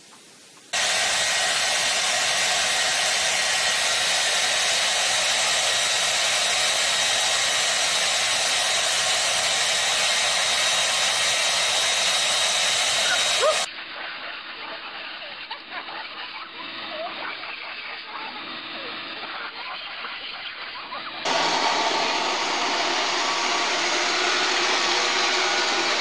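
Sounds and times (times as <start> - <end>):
hair dryer running: 0.8 - 13.7, 21.3 - 26.0.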